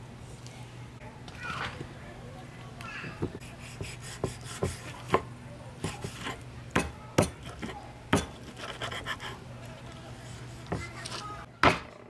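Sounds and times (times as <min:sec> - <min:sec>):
cleaver chopping on wooden block: 0:03.2 - 0:08.8.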